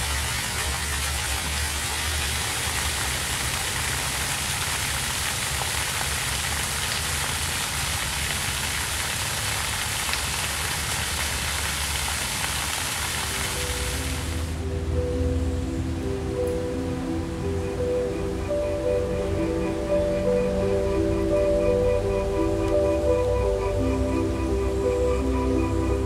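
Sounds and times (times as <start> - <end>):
water splashing onto stone: 0.0 - 14.3.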